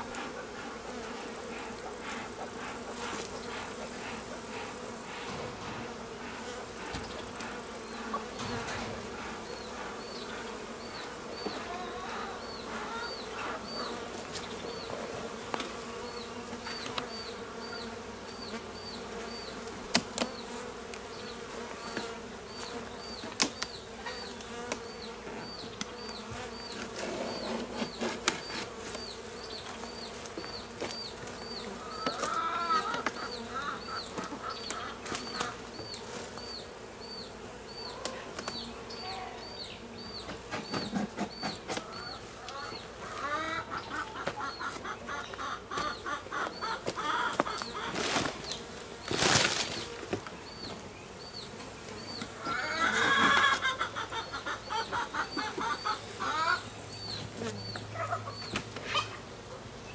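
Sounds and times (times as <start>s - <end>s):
bees buzzing: 0.0s - 59.9s.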